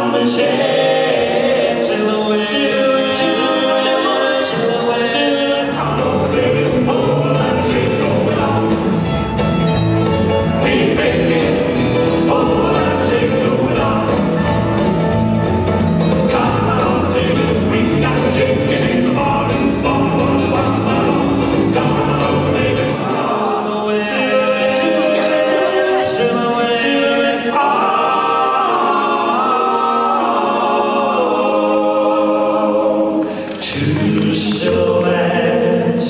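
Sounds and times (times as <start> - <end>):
drums: 0.0 - 30.2
singers harmonising: 0.0 - 36.0
bass: 5.6 - 23.3.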